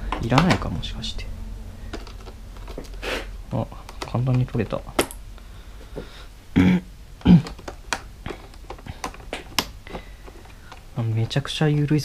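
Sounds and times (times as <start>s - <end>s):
tool and plastic fasteners clicking: 3.8s - 5.2s, 7.3s - 11.6s.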